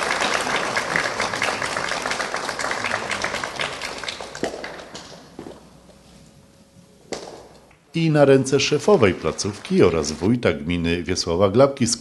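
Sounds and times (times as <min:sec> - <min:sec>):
audience applause: 0:00.0 - 0:05.3, 0:08.8 - 0:10.5.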